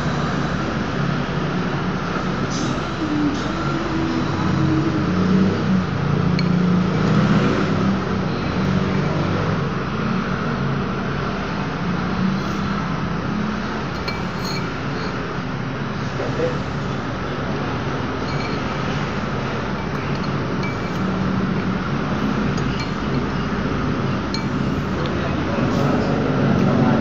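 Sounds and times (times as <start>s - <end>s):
cutlery clinking against bowl: 14.0s - 15.1s, 19.8s - 21.1s.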